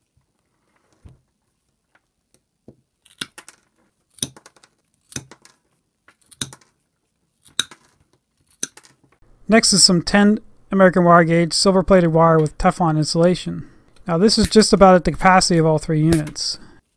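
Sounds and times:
pliers snipping cable: 5.0 - 5.4, 6.2 - 6.6.

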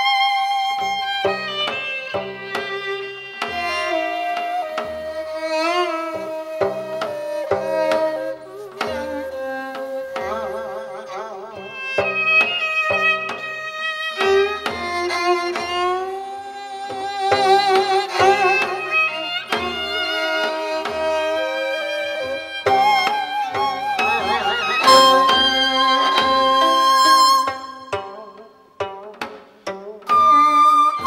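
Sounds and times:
drum strokes: 0.7 - 10.8, 11.6 - 31.0
sustained instrumental tones: 23.5 - 29.1.

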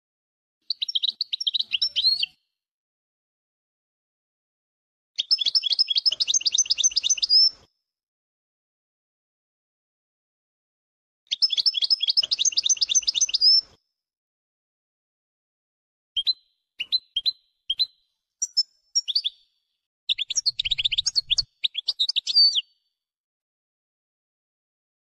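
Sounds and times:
finch twittering song: 0.7 - 2.4, 5.2 - 7.6, 11.3 - 13.8, 16.2 - 22.8
single bird chirps: 0.7 - 2.4, 5.2 - 7.7, 11.3 - 13.8, 16.2 - 22.9.

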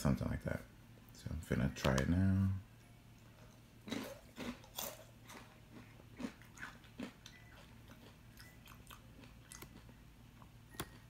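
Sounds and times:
person chewing crunchy chip: 3.4 - 10.0.

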